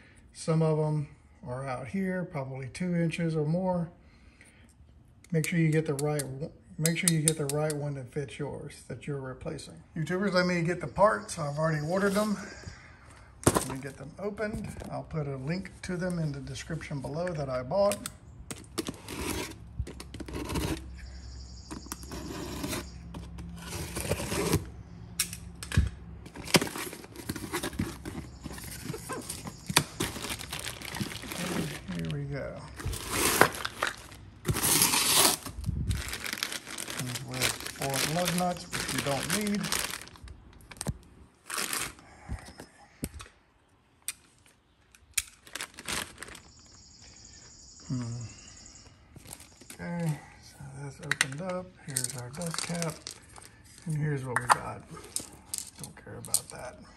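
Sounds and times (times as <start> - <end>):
knife cutting packing tape: 18.7 - 20.9, 21.9 - 23.0, 23.6 - 24.7, 32.8 - 35.6
plastic bag crinkling and tearing: 26.3 - 32.2, 32.8 - 42.0, 45.2 - 46.5, 52.0 - 53.6.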